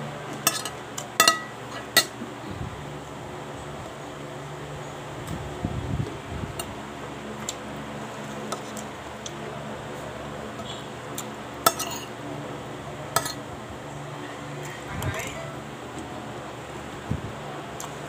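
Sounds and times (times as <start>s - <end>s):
cutlery clinking on plate: 11.7s - 12.1s, 13.2s - 13.4s.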